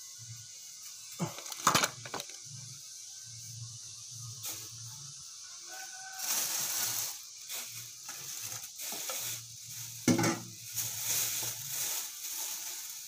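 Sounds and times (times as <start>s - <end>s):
rustling: 6.0s - 13.0s.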